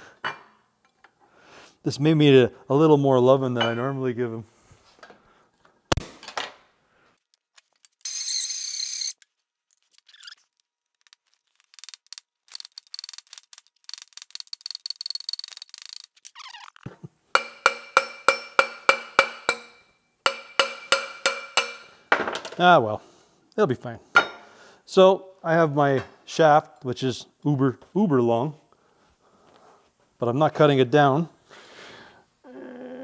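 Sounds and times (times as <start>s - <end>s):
hammer striking metal: 17.3s - 22.3s.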